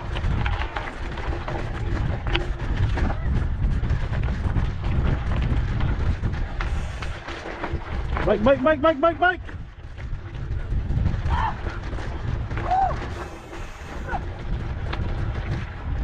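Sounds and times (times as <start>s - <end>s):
bike rattling clicks and knocks: 0.0s - 16.0s
bike rumbling on dirt trail: 0.0s - 16.0s.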